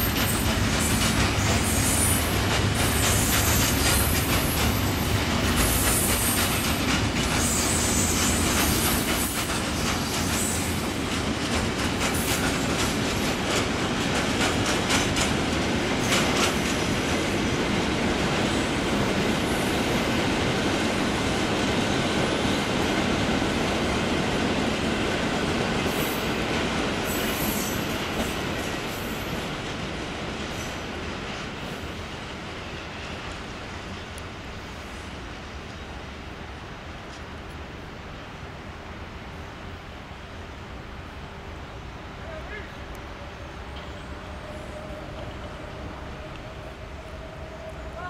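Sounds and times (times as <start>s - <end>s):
train wheel squeal: 0.0s - 11.1s, 16.0s - 17.1s, 27.0s - 29.6s, 30.5s - 30.9s, 43.2s - 48.0s
freight train wheels rumbling: 0.0s - 48.0s.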